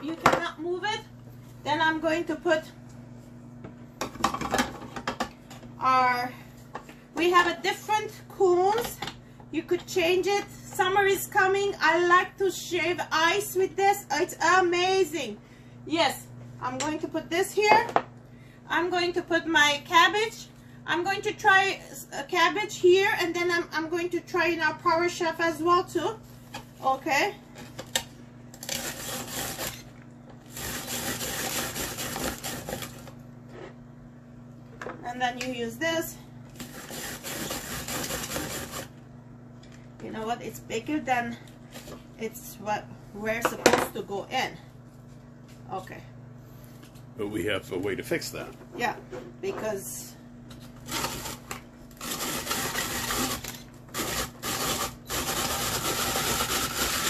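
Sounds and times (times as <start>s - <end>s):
cabbage being grated: 28.6s - 29.8s, 30.5s - 33.0s, 36.6s - 38.9s, 50.8s - 51.4s, 52.0s - 57.0s.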